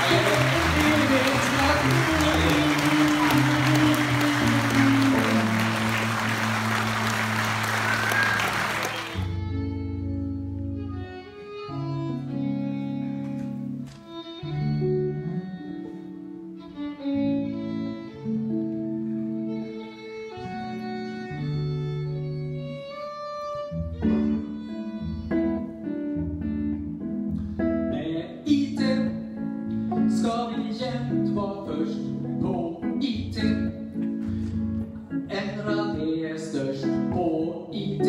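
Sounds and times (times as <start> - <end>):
man singing: 0.0 - 6.3, 27.9 - 29.3, 29.9 - 33.9, 35.2 - 38.0
violin holding notes: 0.0 - 26.7
guitar strumming: 0.0 - 37.4.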